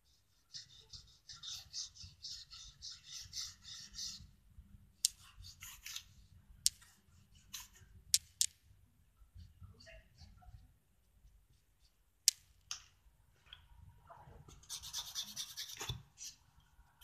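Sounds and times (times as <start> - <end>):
cotton bud scratching on wood: 0.0 - 4.4, 14.6 - 16.4.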